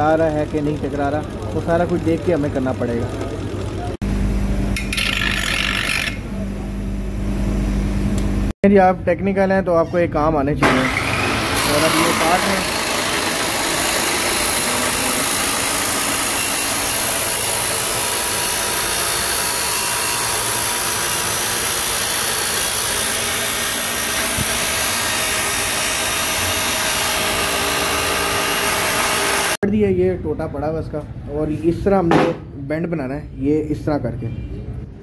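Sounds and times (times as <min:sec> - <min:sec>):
chop saw cutting metal pipe: 0:04.8 - 0:06.2, 0:10.6 - 0:29.6.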